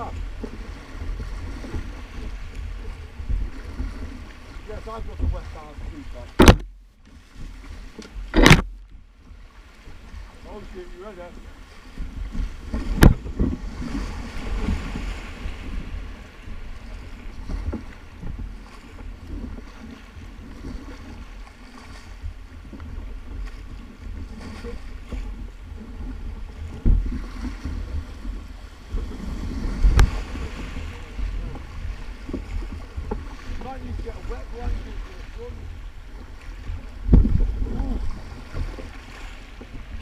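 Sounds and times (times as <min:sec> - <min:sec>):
paddle splashes: 0:00.0 - 0:40.0
river water rushing and splashing: 0:00.0 - 0:40.0
wind buffeting microphone: 0:00.0 - 0:40.0
sharp thumps: 0:06.3 - 0:06.8, 0:08.0 - 0:08.9.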